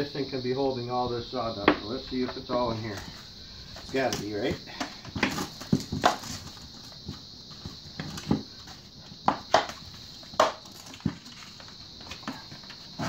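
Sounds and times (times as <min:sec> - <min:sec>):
plastic bucket lid cracking off: 0:04.2 - 0:06.7, 0:09.2 - 0:11.5.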